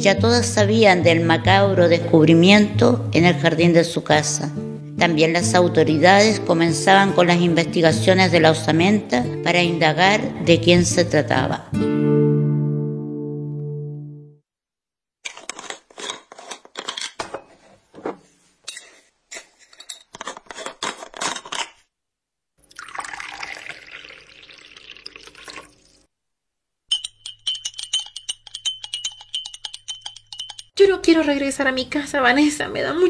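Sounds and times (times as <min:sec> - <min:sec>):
dishes and cutlery clattering: 0:15.4 - 0:21.7, 0:26.9 - 0:30.7
water running from a tap: 0:22.7 - 0:26.0
fast even ticking: 0:26.9 - 0:30.8.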